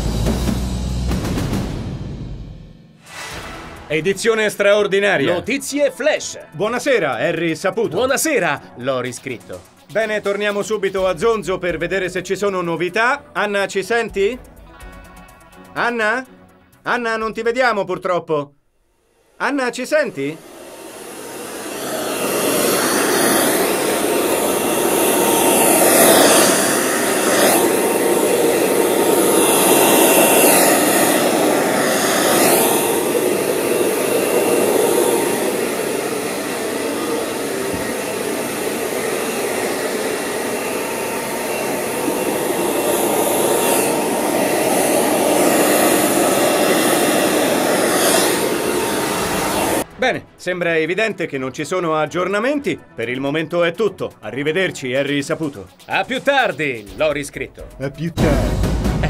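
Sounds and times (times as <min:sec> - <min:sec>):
hair dryer blowing: 0:19.3 - 0:49.9.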